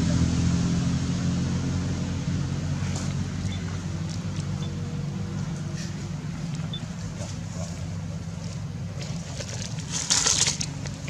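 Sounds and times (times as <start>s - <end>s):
low engine hum: 0.0s - 11.0s
faint crisp rustles: 5.3s - 11.0s.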